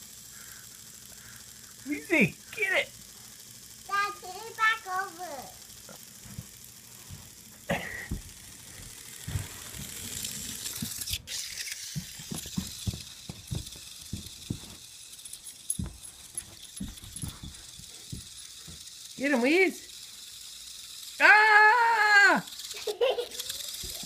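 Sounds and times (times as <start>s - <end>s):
toy rising squeak: 20.3s - 24.0s.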